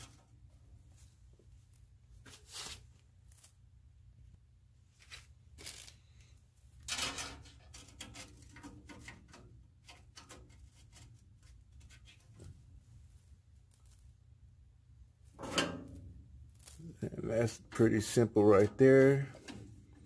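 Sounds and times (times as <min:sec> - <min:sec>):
hands rustling wire: 0:00.0 - 0:03.7, 0:05.0 - 0:14.4, 0:15.2 - 0:17.6.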